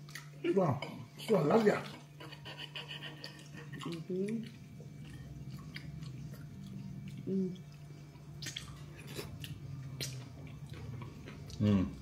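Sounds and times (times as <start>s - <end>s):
steady low hum: 0.0s - 12.0s
mouth chewing: 2.3s - 12.0s
person humming mm: 7.2s - 7.6s.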